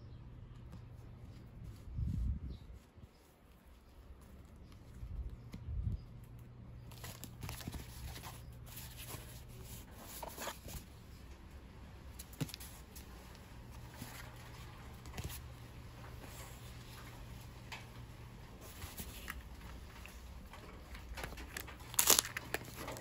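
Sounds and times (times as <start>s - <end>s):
cardboard and bubble wrap rustling: 6.2s - 10.9s, 18.6s - 23.0s.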